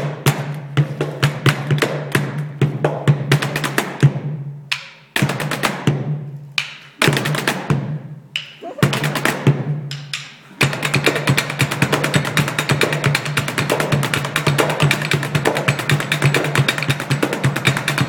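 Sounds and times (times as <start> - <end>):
drumsticks striking metal chairs: 9.9 - 10.7.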